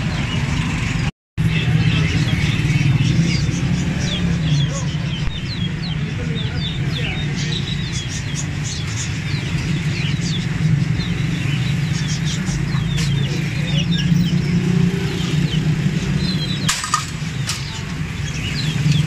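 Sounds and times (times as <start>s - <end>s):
street traffic rumble: 0.0s - 19.0s
chicks peeping: 1.6s - 19.0s.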